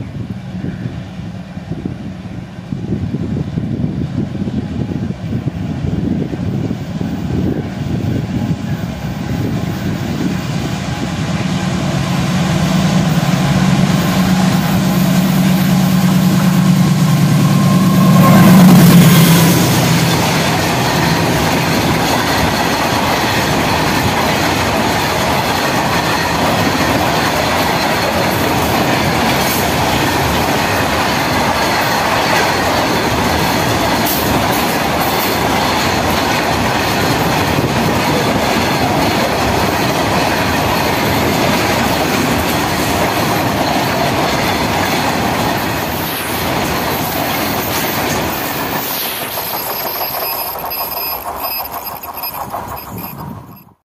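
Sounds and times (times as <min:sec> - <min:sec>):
locomotive engine drone: 0:00.0 - 0:53.8
freight wagons clickety-clack: 0:19.8 - 0:53.8.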